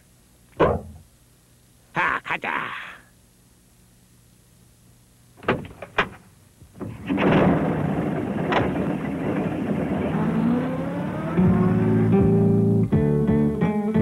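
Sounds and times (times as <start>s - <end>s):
door knocks and thuds: 0.6s - 1.0s, 5.4s - 6.2s
van engine running: 6.9s - 14.0s.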